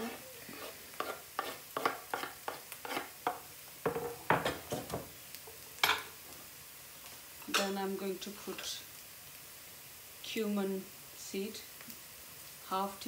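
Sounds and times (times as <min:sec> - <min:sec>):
metal spoon scraping wooden board: 0:00.6 - 0:03.1.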